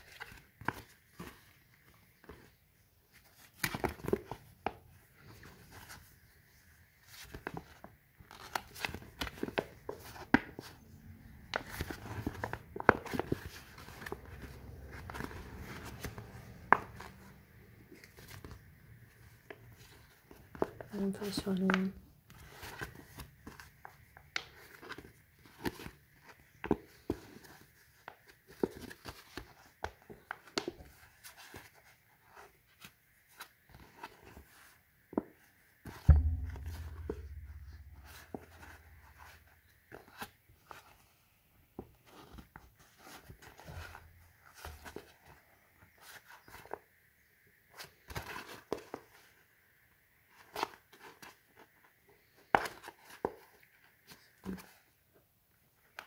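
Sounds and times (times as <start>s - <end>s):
low thump: 36.1s - 39.2s.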